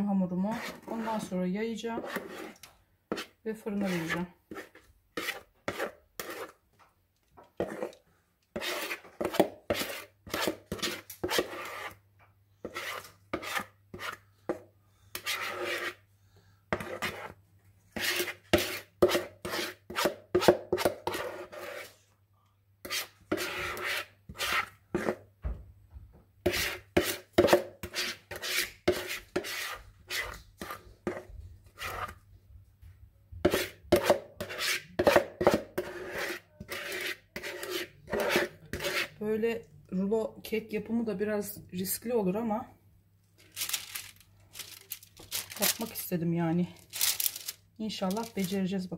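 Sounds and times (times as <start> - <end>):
spatula scraping bowl: 0.0 - 6.6, 7.4 - 12.0, 12.6 - 16.0, 16.7 - 22.0, 22.8 - 25.3, 26.4 - 32.3, 33.4 - 39.4.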